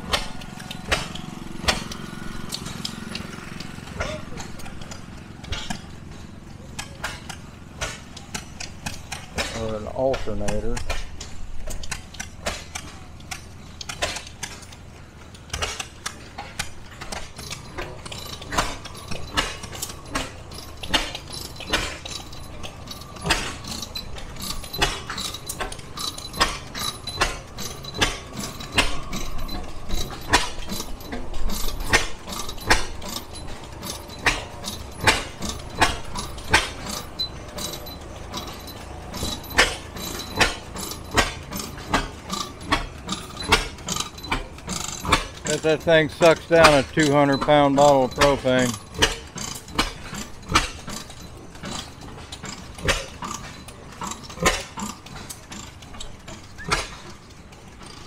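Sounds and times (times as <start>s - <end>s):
gas engine pops and clicks: 0.0s - 22.4s, 38.3s - 58.0s.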